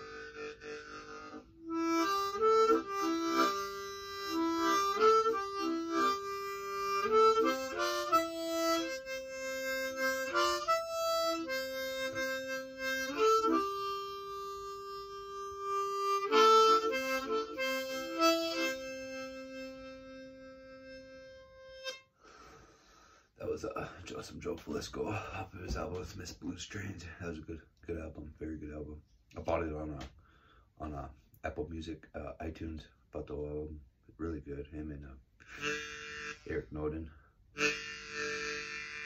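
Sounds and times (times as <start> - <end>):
harmonica solo melody: 0.0 - 25.4, 35.4 - 39.0.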